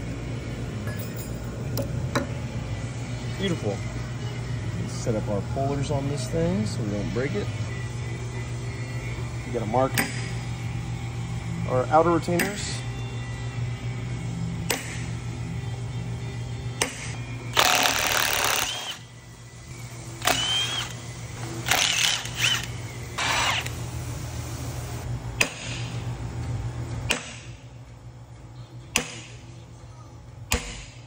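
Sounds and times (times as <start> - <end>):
impact wrench bursts: 17.6 - 19.0, 20.2 - 21.0, 21.6 - 23.8.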